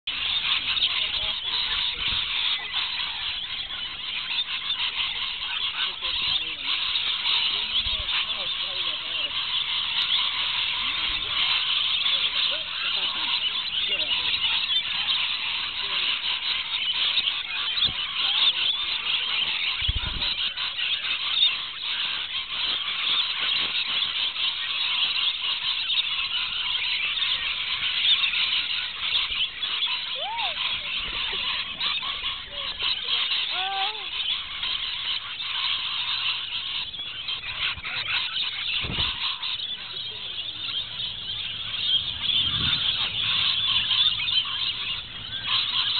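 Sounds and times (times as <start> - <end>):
parrots screeching and chattering: 0.1 - 45.9.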